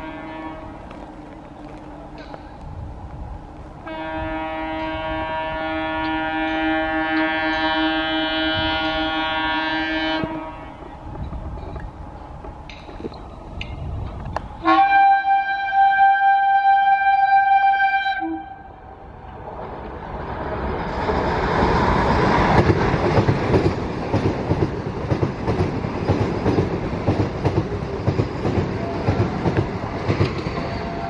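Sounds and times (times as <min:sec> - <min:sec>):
train horn: 0:00.0 - 0:01.0, 0:03.8 - 0:11.0, 0:14.6 - 0:19.0, 0:30.6 - 0:31.0
passing train rushing: 0:00.0 - 0:31.0
wheels clattering over rail joints: 0:10.8 - 0:14.6.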